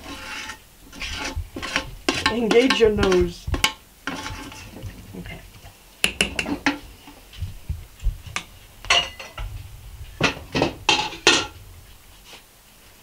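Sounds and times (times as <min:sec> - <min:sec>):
metal spoon scraping ceramic dish: 0:00.0 - 0:03.3, 0:04.1 - 0:05.5.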